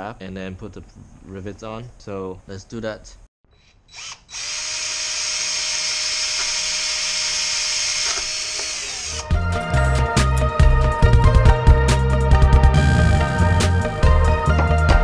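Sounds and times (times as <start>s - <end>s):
cordless drill whining: 3.6s - 9.4s
music: 9.2s - 15.0s.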